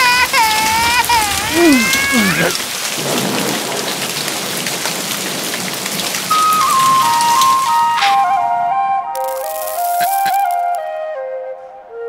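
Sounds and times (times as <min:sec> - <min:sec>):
crying wail: 0:00.0 - 0:02.8
thunder rumbling: 0:00.0 - 0:08.7
heavy rain falling: 0:00.0 - 0:10.8
flute-like tone: 0:06.3 - 0:12.0.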